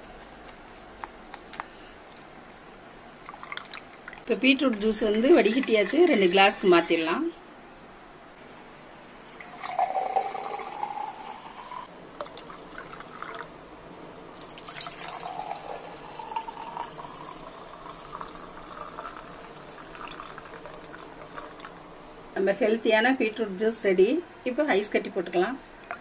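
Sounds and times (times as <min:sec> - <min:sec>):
juice pouring into a glass: 0:03.2 - 0:04.3, 0:09.2 - 0:13.5, 0:14.3 - 0:22.0.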